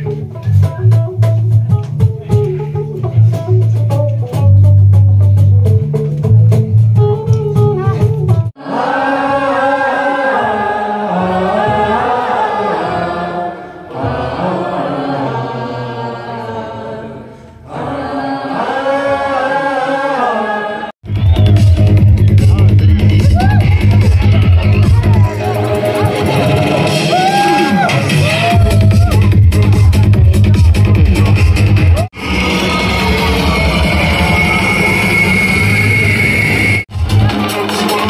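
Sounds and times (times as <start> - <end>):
live band with bass and drums: 0.0 - 8.6, 21.0 - 32.1, 36.9 - 38.0
voices singing in harmony: 8.6 - 21.0.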